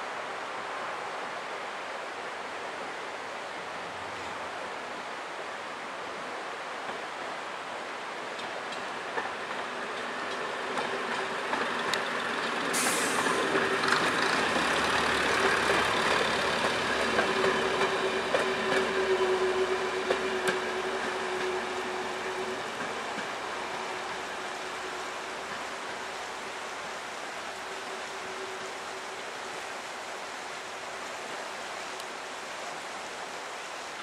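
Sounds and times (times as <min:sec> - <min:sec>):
wheels clicking over rail joints: 0:08.3 - 0:24.3
diesel train engines running: 0:08.7 - 0:29.1
brief hiss: 0:12.6 - 0:15.3.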